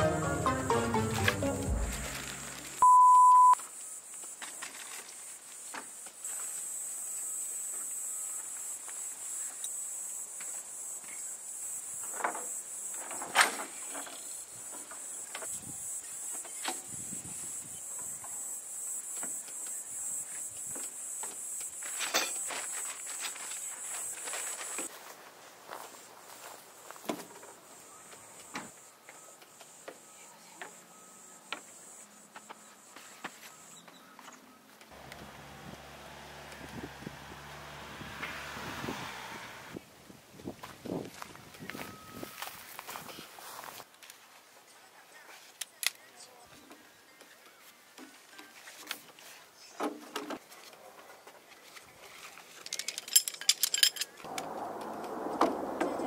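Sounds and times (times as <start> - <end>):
high-pitched buzz: 0.0 - 3.6
camp table poles clicking: 52.5 - 54.3
helicopter drone overhead: 54.2 - 56.0.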